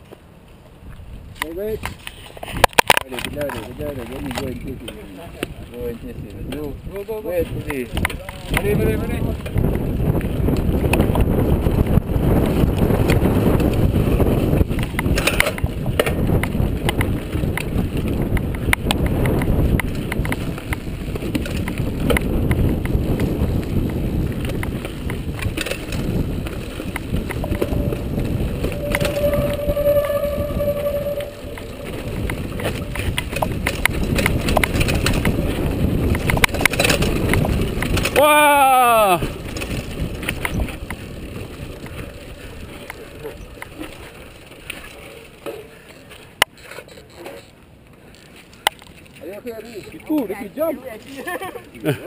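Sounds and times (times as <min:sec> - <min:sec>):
held tone: 0:27.0 - 0:33.2.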